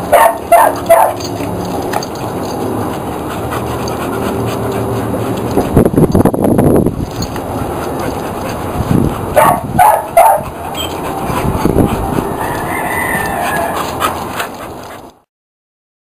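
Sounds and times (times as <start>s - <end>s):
steady outdoor noise: 0.0s - 15.3s
drawn-out animal call: 9.9s - 14.5s.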